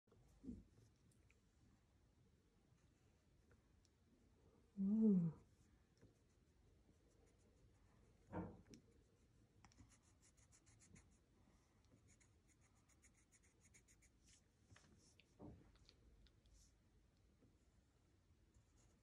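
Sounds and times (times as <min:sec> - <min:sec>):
pencil scratching on paper: 0:09.7 - 0:11.2, 0:12.0 - 0:14.2.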